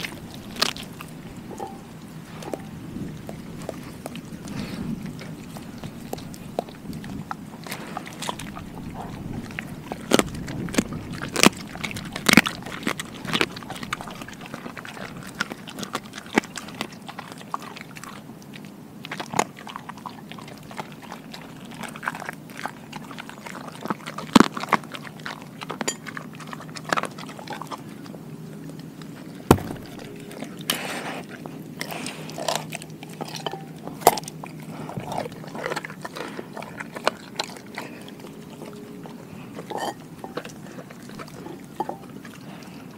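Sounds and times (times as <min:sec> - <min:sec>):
bones cracking: 0:00.0 - 0:17.0, 0:28.8 - 0:38.0
dog chewing and crunching: 0:00.0 - 0:42.9.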